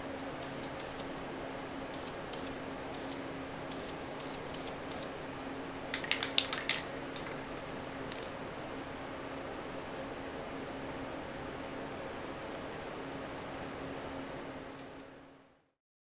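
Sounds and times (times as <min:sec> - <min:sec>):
steady low hum: 0:00.0 - 0:15.7
aerosol can spraying puffs: 0:00.2 - 0:01.1, 0:01.9 - 0:05.1
aerosol mixing ball rattling: 0:05.9 - 0:08.4.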